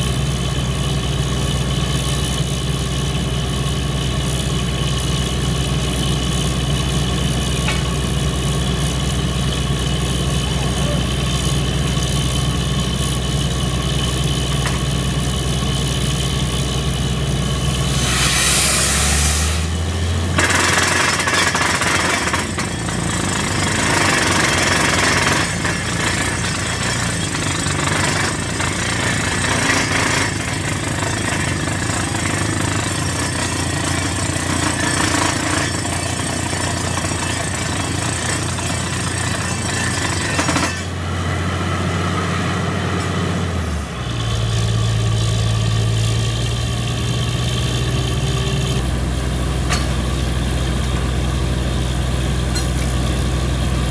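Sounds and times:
drilling rig engine: 0:00.0 - 0:53.9
compressed air hissing: 0:17.9 - 0:19.6.

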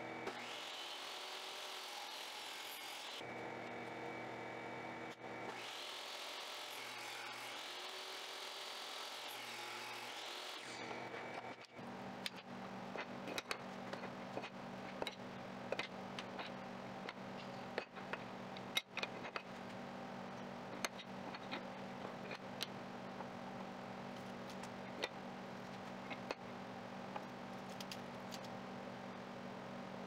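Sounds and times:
steady low hum: 0:11.1 - 0:30.0.

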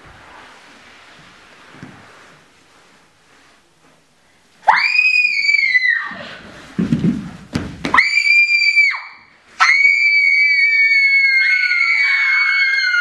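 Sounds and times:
girls screaming: 0:04.7 - 0:06.3, 0:08.0 - 0:13.0.

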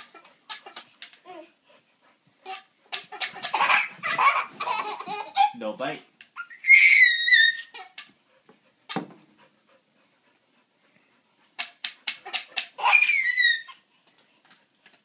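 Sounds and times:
dog whining: 0:06.4 - 0:08.0, 0:12.4 - 0:13.9
sharp clicks and knocks: 0:11.6 - 0:12.8.

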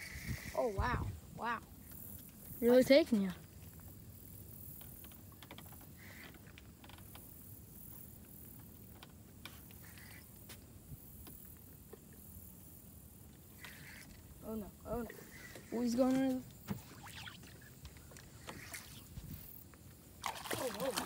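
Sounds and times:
fishing reel buzzes: 0:00.0 - 0:01.0, 0:09.6 - 0:10.4, 0:13.5 - 0:14.3, 0:15.1 - 0:19.6
low wind rumble: 0:00.0 - 0:01.9.

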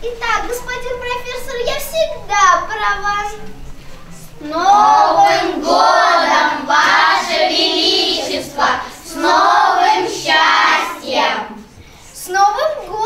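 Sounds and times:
young children singing together: 0:04.4 - 0:11.8.

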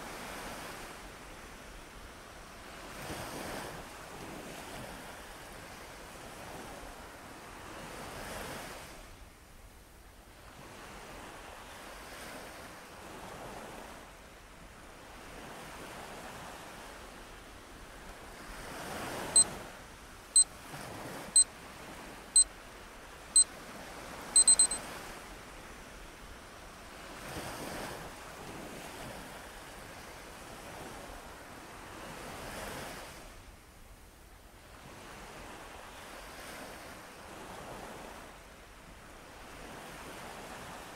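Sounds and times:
countdown timer beeps: 0:24.4 - 0:24.8.

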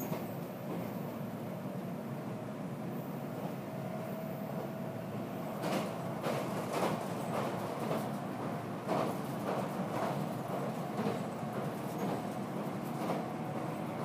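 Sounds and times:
train wheels rumbling on rail: 0:00.0 - 0:14.0
train wheels clacking: 0:05.6 - 0:14.0.

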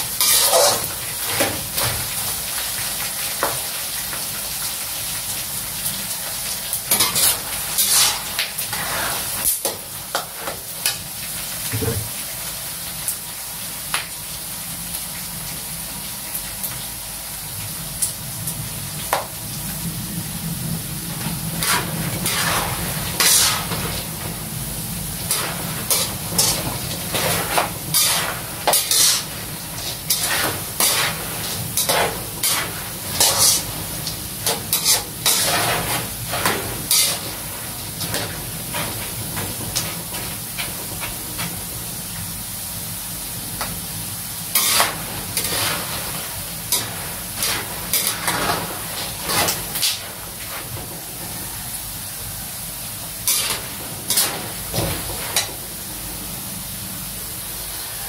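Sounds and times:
peanuts sizzling in oil: 0:00.0 - 0:58.0
metal spatula scraping a wok: 0:00.2 - 0:01.4, 0:06.9 - 0:09.7, 0:21.6 - 0:24.1, 0:25.2 - 0:33.8, 0:34.4 - 0:39.2, 0:44.5 - 0:50.9, 0:53.2 - 0:55.5.

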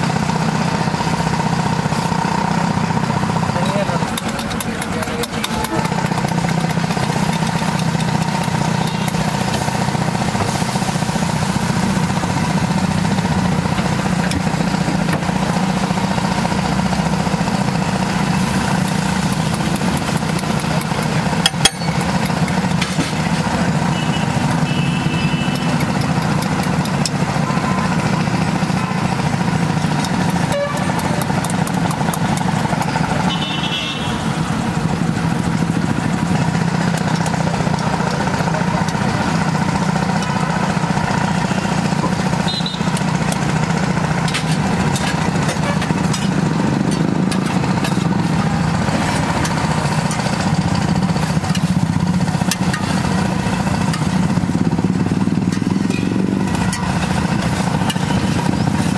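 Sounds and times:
gravy sizzling and bubbling: 0:00.0 - 0:33.4, 0:34.2 - 0:58.9
spatula stirring on iron pan: 0:55.4 - 0:58.9.

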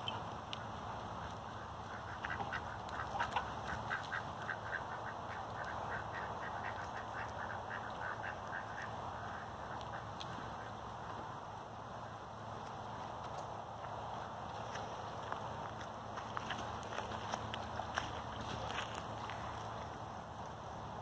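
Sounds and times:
duck quacking: 0:01.2 - 0:10.8.

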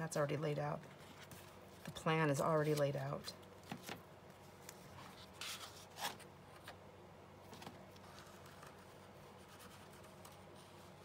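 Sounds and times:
paper rustling: 0:07.5 - 0:11.0.

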